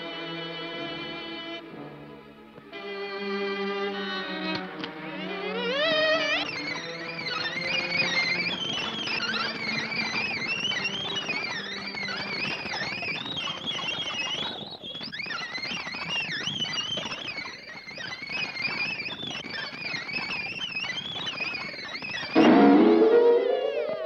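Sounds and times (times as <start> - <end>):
high wavering cartoon music warble: 22.0 - 24.0.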